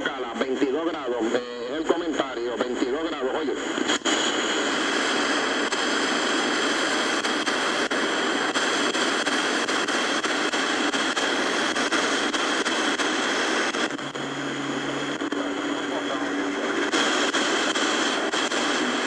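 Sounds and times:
low steady hum: 0.0s - 19.0s
radio static hiss: 0.0s - 19.0s.

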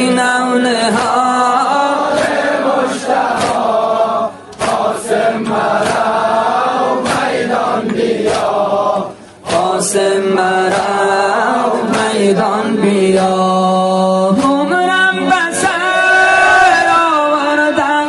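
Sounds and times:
voices chanting in chorus: 0.0s - 18.0s
steady beat: 0.9s - 11.1s.

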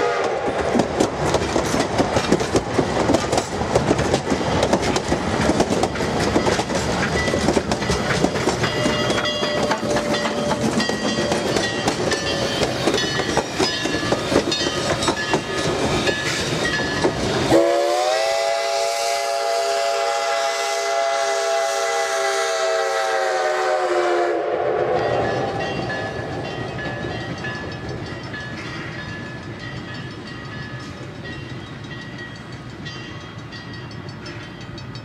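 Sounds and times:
steam whistle blast: 0.0s - 0.6s, 17.5s - 25.6s
steam locomotive clanking: 0.0s - 35.0s.

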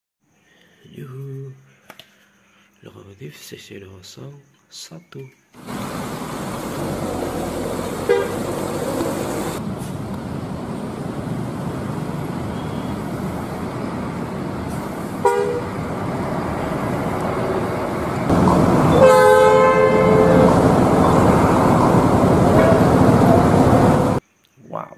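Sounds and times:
buses driving past: 5.6s - 24.2s
long multi-tone horn: 6.8s - 9.6s, 15.2s - 16.0s, 17.4s - 24.2s
short bus horn toots: 8.0s - 8.8s, 15.2s - 15.8s, 18.9s - 20.7s, 22.5s - 23.0s.

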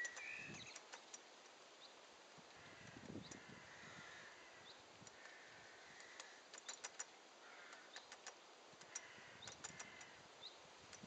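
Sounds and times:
faint birdsong: 0.0s - 11.0s
woodpecker pecking at feeder: 6.0s - 10.2s.

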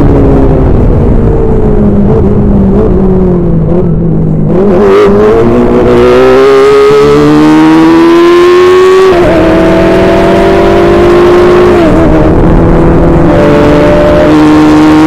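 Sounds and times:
race car engine: 0.0s - 15.0s
wind and road noise: 0.0s - 15.0s.

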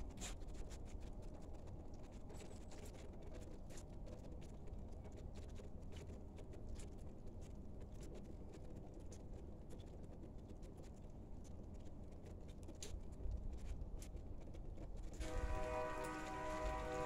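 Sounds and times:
distant train horn: 15.2s - 17.0s.

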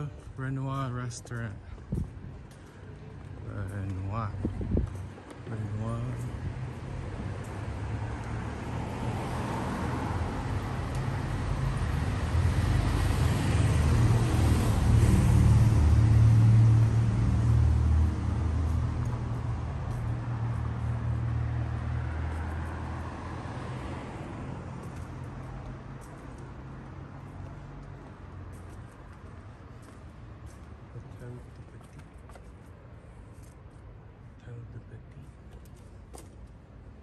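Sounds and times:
vehicle passing with engine rumble: 6.4s - 28.6s.

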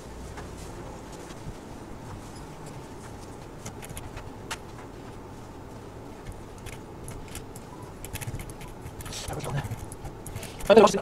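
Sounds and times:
low room hum and hiss: 0.0s - 11.0s
computer mouse clicks: 3.6s - 4.2s, 6.2s - 10.8s.

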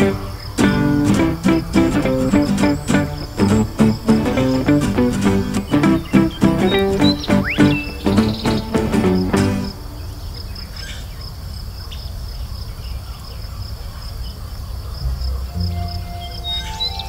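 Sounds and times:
music: 0.0s - 10.0s, 15.0s - 17.0s
crickets chirping: 0.0s - 17.0s.

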